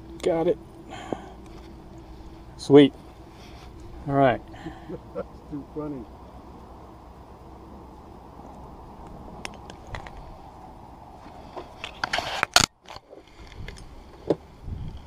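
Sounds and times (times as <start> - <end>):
handling scrapes and clicks: 11.5 - 13.9.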